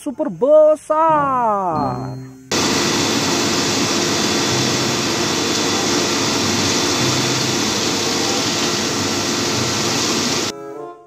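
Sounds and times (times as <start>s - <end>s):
concrete mixer truck running: 2.5s - 10.5s.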